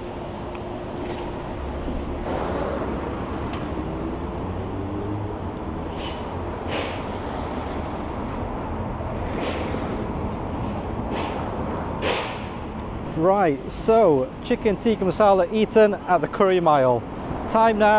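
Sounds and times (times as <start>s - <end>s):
cars passing close by: 0.0s - 13.2s.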